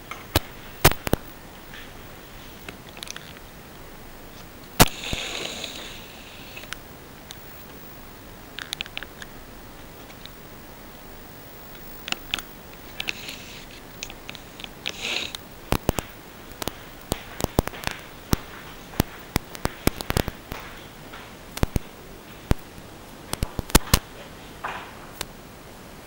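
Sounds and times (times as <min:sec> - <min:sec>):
sharp clicks and taps: 0:00.1 - 0:01.9, 0:08.6 - 0:09.3, 0:14.0 - 0:25.3.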